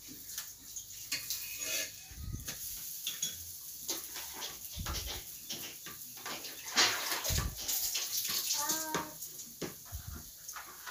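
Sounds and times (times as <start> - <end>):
spatula clinking on metal plate: 1.1 - 5.8.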